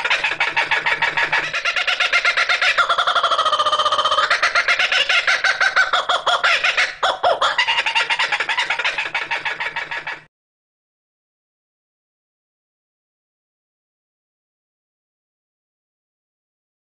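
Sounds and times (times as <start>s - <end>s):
kookaburra laughing call: 0.0s - 10.3s.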